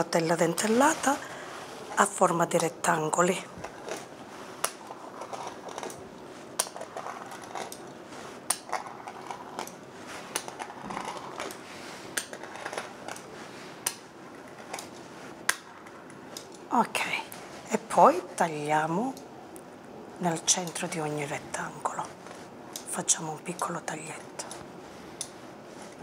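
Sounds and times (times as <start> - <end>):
pastry wheel rolling scrape: 3.3 - 16.0.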